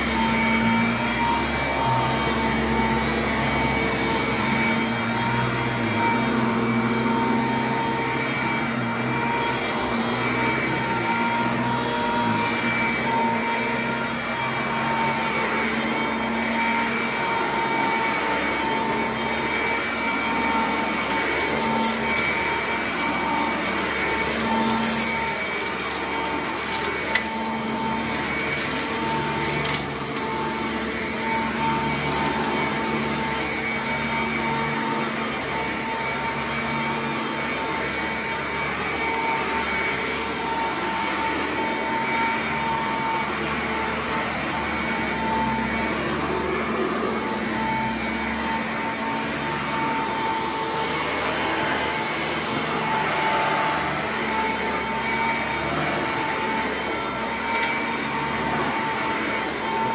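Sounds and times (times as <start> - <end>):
upright vacuum running on carpet: 0.0 - 59.9
grit crackling in vacuum brush: 17.0 - 39.8.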